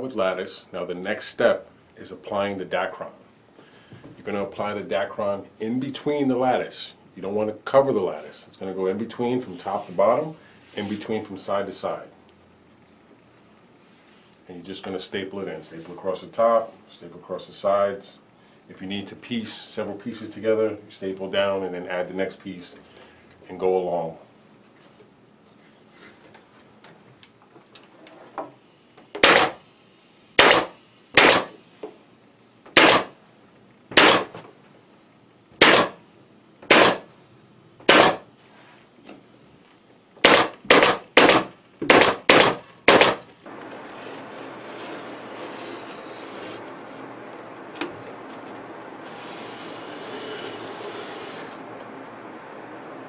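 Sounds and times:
pneumatic staple gun firing: 0:29.1 - 0:29.7, 0:30.4 - 0:32.0, 0:32.7 - 0:33.2, 0:33.9 - 0:34.4, 0:35.6 - 0:36.0, 0:36.7 - 0:37.1, 0:37.8 - 0:38.3, 0:40.2 - 0:43.3.

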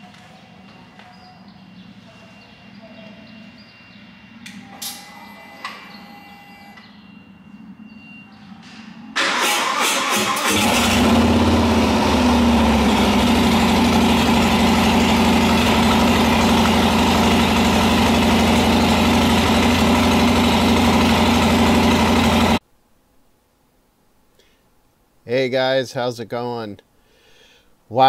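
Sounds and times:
motorcycle engine starting and idling: 0:09.1 - 0:22.6.

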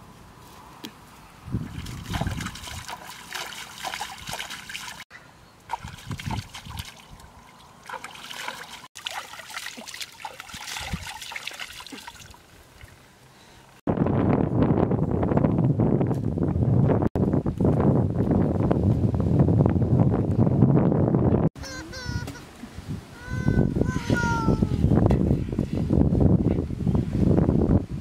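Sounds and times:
water splashing and trickling: 0:01.5 - 0:13.8.

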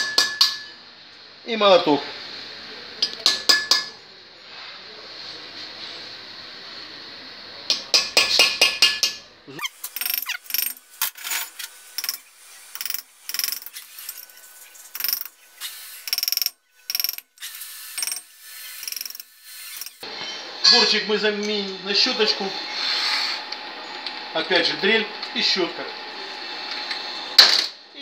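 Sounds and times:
hammer tapping chisel on metal: 0:00.0 - 0:00.7, 0:03.0 - 0:03.9, 0:07.7 - 0:09.2
steady hiss: 0:00.9 - 0:20.1.

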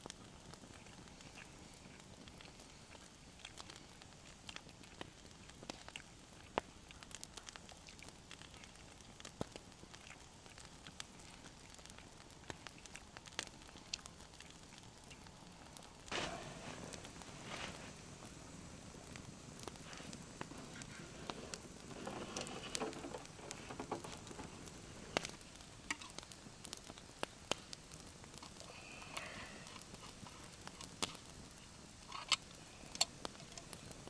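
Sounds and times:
wood fire crackling: 0:00.0 - 0:34.0
sharp pops: 0:16.1 - 0:27.7.

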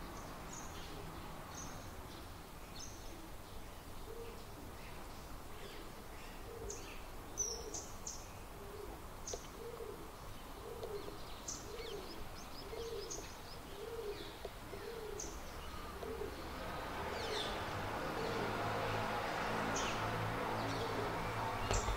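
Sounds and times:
dove cooing: 0:09.6 - 0:15.2, 0:15.8 - 0:16.5.

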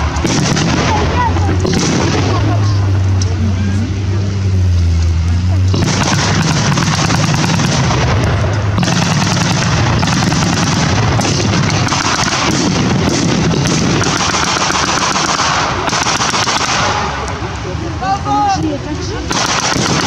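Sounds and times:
rapid blank gunfire: 0:00.2 - 0:02.6, 0:05.7 - 0:17.2, 0:19.3 - 0:20.0.

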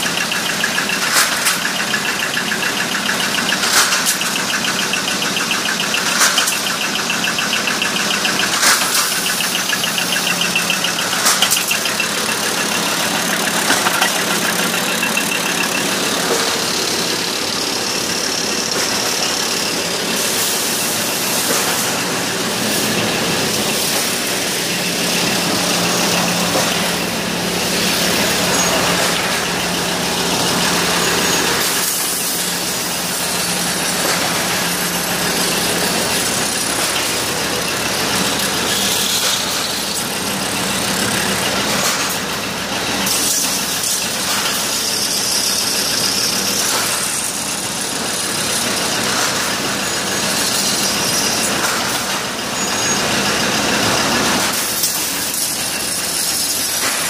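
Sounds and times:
factory machines running: 0:00.0 - 0:57.0
flowing coolant: 0:00.0 - 0:57.0
thread-rolling machine: 0:00.0 - 0:57.0.

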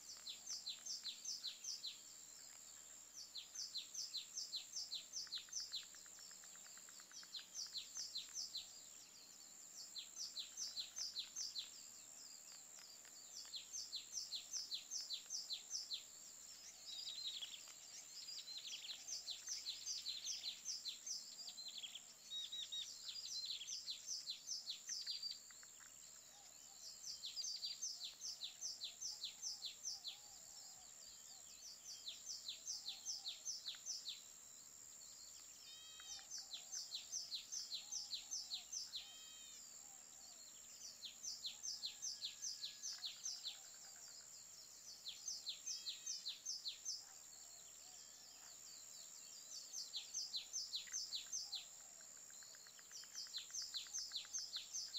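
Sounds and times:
songbird chirping: 0:00.0 - 0:54.9
lower bird calls: 0:35.3 - 0:44.2.

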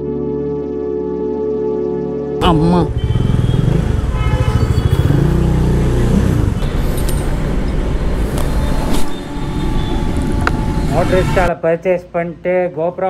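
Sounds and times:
motorcycle engine running: 0:02.5 - 0:08.0.

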